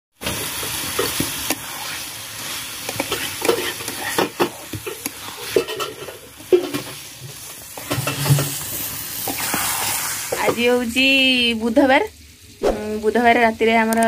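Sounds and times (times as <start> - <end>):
chicken sizzling in a pan: 0.2 - 13.9
metal spatula scraping a pan: 0.9 - 9.7.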